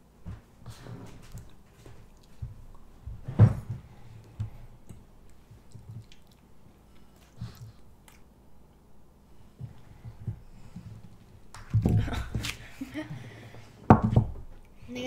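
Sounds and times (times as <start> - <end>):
child chewing: 0.7 - 3.1, 3.9 - 12.9.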